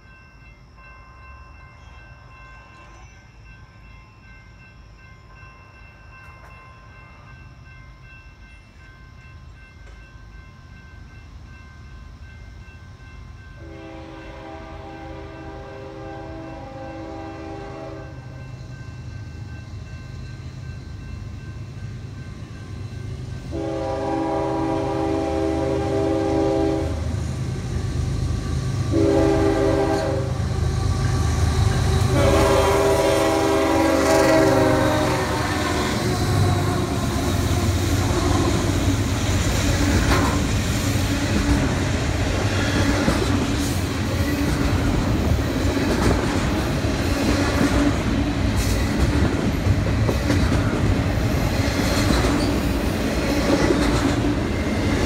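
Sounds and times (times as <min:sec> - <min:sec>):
train air horn blasts: 0:13.6 - 0:18.4, 0:23.5 - 0:27.2, 0:28.8 - 0:38.9.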